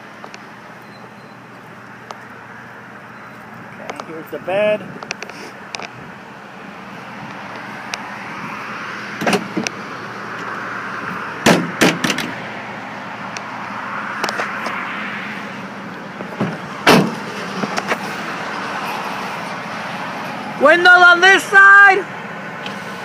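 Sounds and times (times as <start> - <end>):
tailgate latch clicks and clunks: 9.2 - 9.8, 11.4 - 12.4, 16.4 - 17.2.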